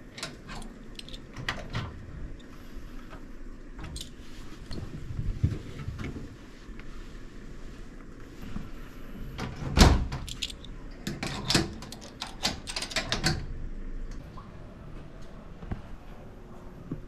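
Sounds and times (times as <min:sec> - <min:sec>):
padlock clicks and rattles: 0:00.1 - 0:01.8, 0:10.2 - 0:13.4
metal locker door banging shut: 0:09.4 - 0:10.3.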